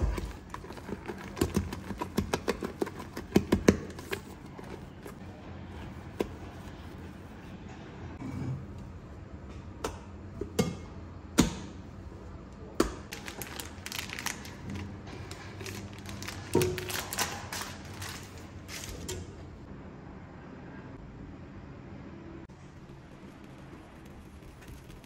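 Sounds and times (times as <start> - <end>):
spatula scraping cream in bowl: 0.0 - 7.5.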